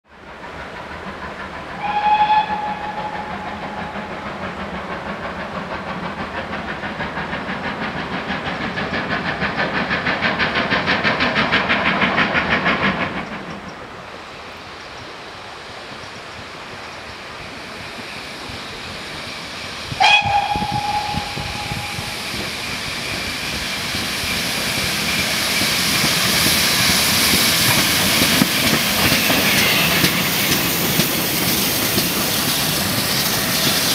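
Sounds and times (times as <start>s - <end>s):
steam hiss and running noise: 0.1s - 33.9s
steam locomotive exhaust beats: 0.1s - 33.9s
steam locomotive whistle: 1.8s - 4.4s, 19.9s - 23.4s.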